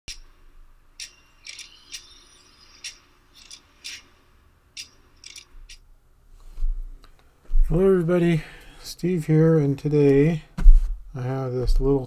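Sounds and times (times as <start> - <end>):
metallic clicks and clinks: 4.8 - 5.8.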